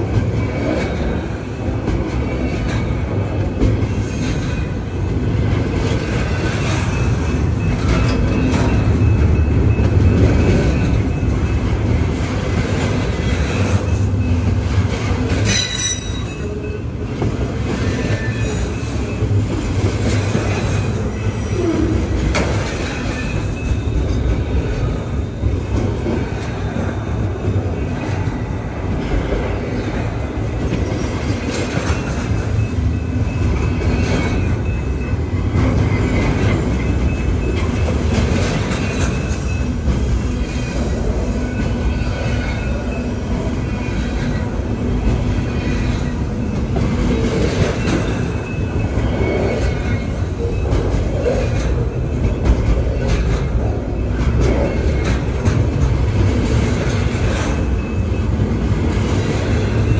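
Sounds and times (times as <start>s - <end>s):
train wheels rumbling on rails: 0.0s - 59.9s
wheel squeals: 15.2s - 17.0s, 17.7s - 24.7s, 30.7s - 55.7s.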